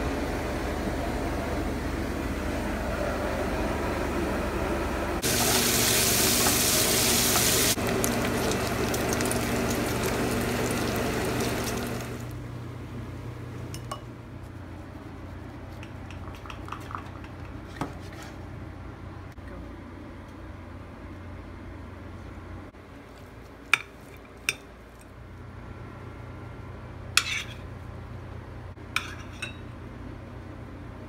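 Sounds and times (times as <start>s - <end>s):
bacon sizzling in frying pan: 5.2s - 12.3s
utensils clicking and tapping: 15.8s - 17.6s
knife on cutting board: 27.2s - 27.6s.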